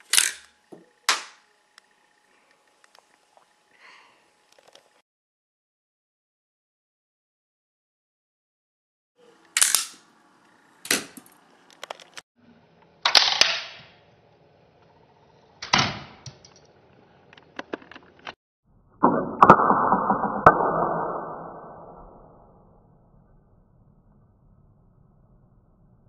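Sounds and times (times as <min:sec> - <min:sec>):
toy catapult gun plastic snaps: 0:00.0 - 0:00.5, 0:09.5 - 0:10.0, 0:13.0 - 0:13.8.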